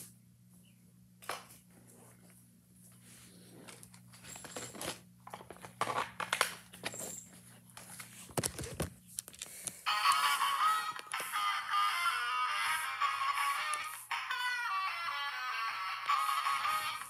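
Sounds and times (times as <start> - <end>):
toy playing electronic song: 9.8 - 17.0.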